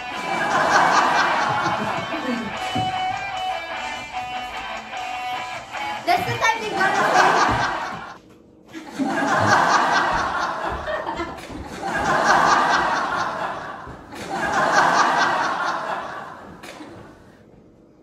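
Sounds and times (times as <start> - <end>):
laughter: 0.0 - 2.9, 6.6 - 17.1.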